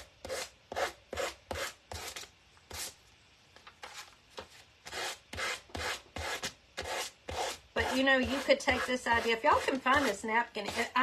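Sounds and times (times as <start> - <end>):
sanding block scratching paper: 4.9 - 11.0.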